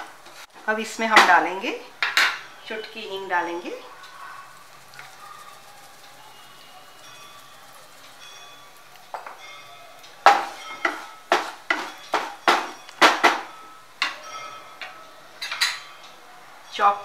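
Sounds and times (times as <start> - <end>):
spatula knocking against frying pan: 10.2 - 14.2.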